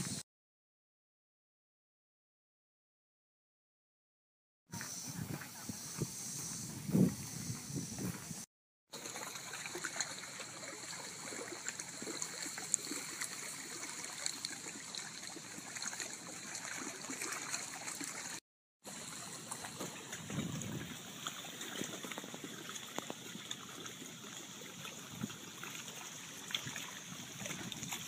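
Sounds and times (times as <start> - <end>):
water with small crackles: 8.9 - 28.0.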